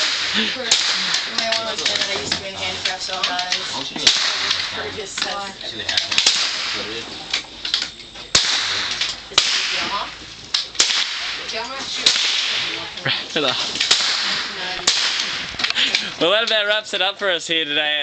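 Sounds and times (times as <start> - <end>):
rifle shots: 0.0 - 5.4, 6.0 - 7.1, 8.3 - 13.0, 13.7 - 16.1.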